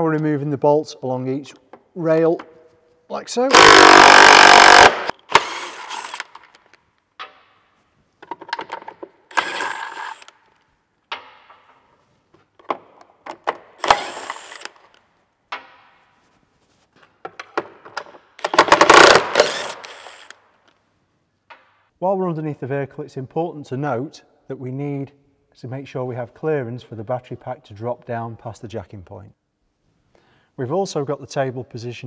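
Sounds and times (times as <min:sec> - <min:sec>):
cordless power tool bursts: 0:03.5 - 0:06.4, 0:09.3 - 0:10.3, 0:13.8 - 0:14.7, 0:18.4 - 0:20.4.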